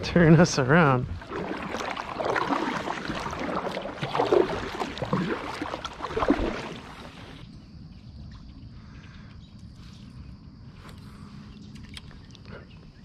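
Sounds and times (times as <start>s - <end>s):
paddle strokes splashing water: 0.3s - 7.4s.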